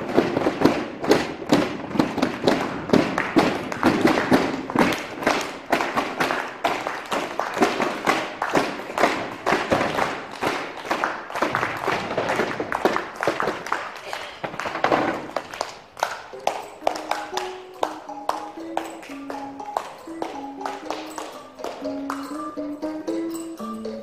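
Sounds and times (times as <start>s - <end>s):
tapping stamping and clapping: 0.0s - 22.5s
sustained musical notes: 16.3s - 24.0s.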